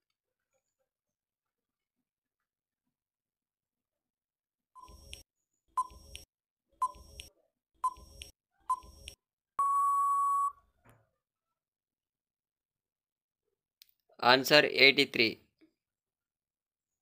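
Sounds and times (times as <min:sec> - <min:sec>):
long steady beep: 0:09.6 - 0:10.6.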